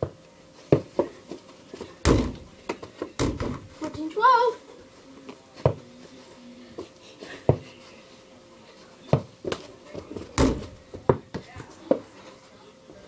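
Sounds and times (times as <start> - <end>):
basketball bouncing on floor: 2.0 - 3.6.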